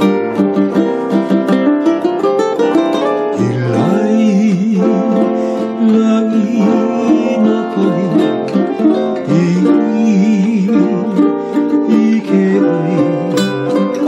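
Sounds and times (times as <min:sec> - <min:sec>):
strummed ukulele: 0:00.0 - 0:14.0
man singing with vibrato: 0:03.2 - 0:14.0.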